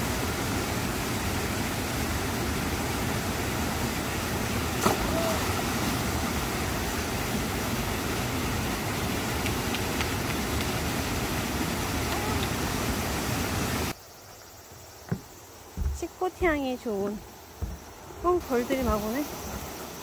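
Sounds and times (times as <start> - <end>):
stream rushing over boulders: 0.0 - 14.0, 15.0 - 20.0
single knock: 15.1 - 16.0, 17.6 - 17.9.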